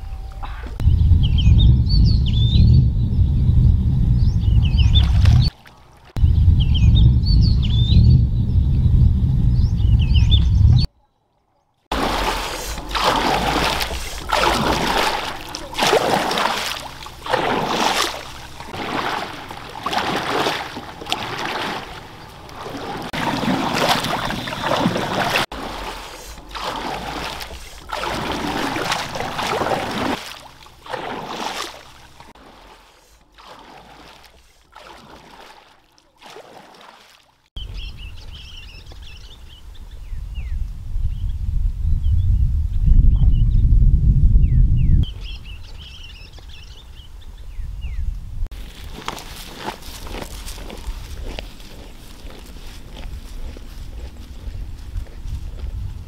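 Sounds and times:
low steady rumble: 0.0s - 10.9s
canoe paddle splashing in water: 4.8s - 6.2s, 11.9s - 37.5s, 48.5s - 54.3s.

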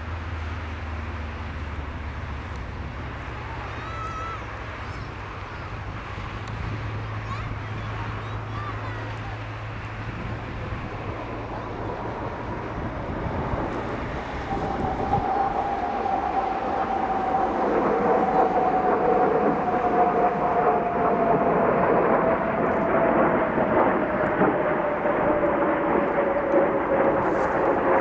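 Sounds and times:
jet engines roaring: 0.0s - 28.0s
jet whine falling in pitch: 9.7s - 28.0s.

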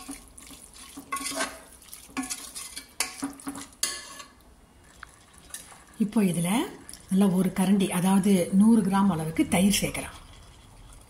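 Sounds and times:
metal ladle scraping a pot: 0.0s - 4.4s
chicken sauteing: 0.0s - 4.6s.

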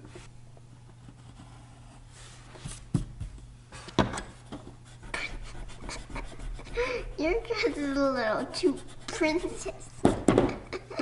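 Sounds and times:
pencils scratching on paper: 4.8s - 10.3s.

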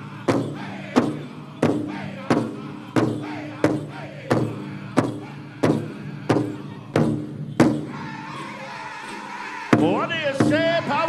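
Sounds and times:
big drum beating slowly: 0.0s - 7.9s
group singing in unison: 0.0s - 11.0s.

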